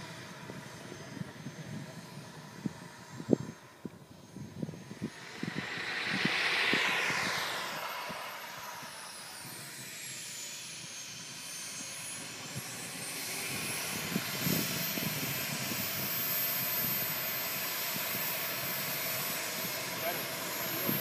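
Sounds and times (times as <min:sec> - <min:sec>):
model jet turbine whine: 0:00.0 - 0:21.0
rushing noise: 0:04.8 - 0:10.5.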